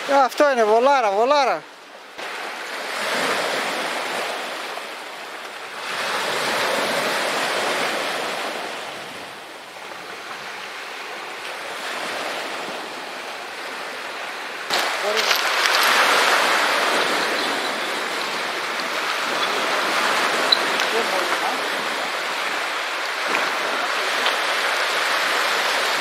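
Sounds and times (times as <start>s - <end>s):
waves on rocky shore: 0.0s - 26.0s.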